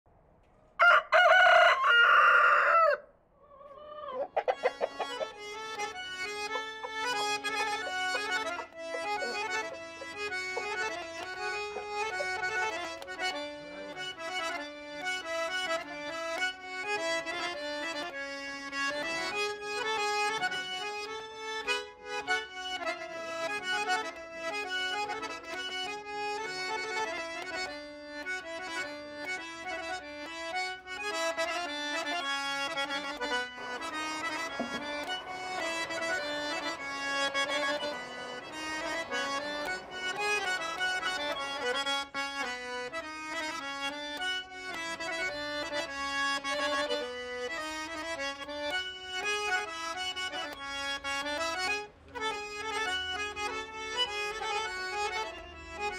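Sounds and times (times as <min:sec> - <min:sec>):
rooster crowing: 0:00.8 - 0:05.1
accordion tune over drone: 0:04.2 - 0:55.9.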